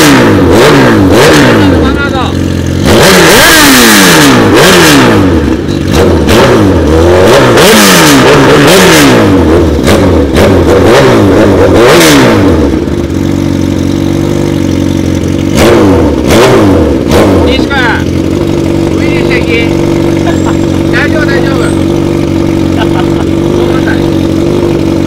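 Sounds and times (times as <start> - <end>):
motorcycle engine revving: 0.0 - 25.0.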